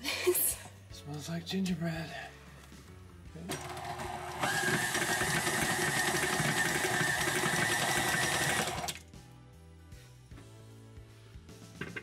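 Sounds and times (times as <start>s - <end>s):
stand mixer motor whine: 3.6s - 9.0s.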